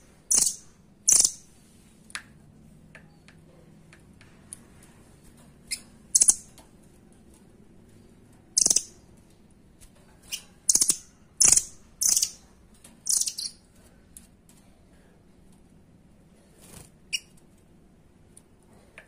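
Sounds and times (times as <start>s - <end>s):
bird high-pitched calls and trills: 0.3s - 1.6s, 5.6s - 6.6s, 8.0s - 9.1s, 10.2s - 13.7s, 17.1s - 17.4s.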